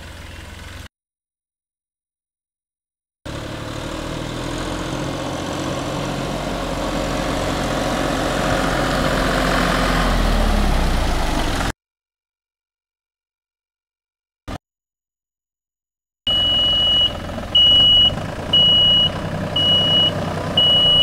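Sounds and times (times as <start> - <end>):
tractor engine passing by: 0.0 - 0.9, 3.3 - 11.7, 16.3 - 21.0.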